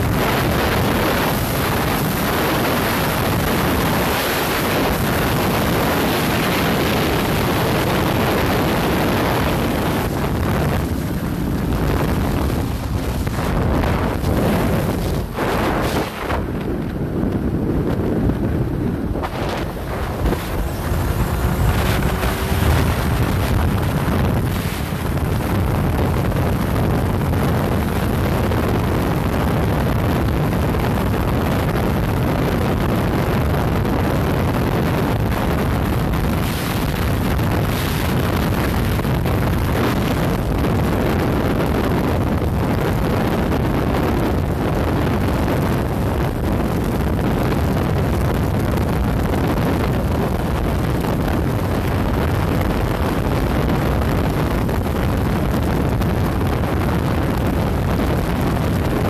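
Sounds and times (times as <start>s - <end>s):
road noise: 0.0s - 32.4s, 33.6s - 59.0s
wind rushing over microphone: 0.0s - 59.0s
motorcycle engine: 0.1s - 26.8s.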